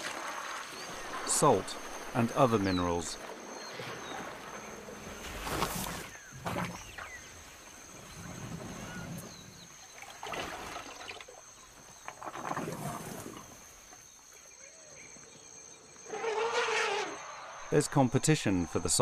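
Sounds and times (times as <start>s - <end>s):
elephants sloshing in mud: 0.0s - 13.7s.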